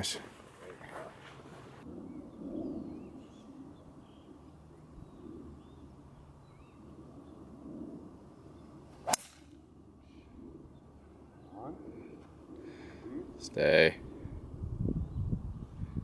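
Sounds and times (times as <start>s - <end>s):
faint bird chirps: 1.9s - 7.6s
golf club striking ball: 9.0s - 9.6s.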